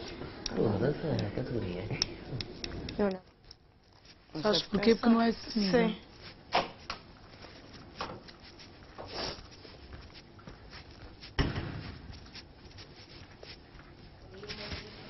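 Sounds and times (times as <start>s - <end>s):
thump: 11.4s - 12.0s.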